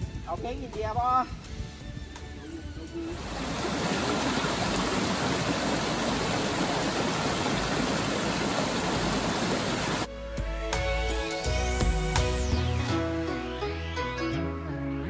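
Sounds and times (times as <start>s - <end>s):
stream rushing over rocks: 3.2s - 10.1s
music with rising tone: 10.1s - 15.0s.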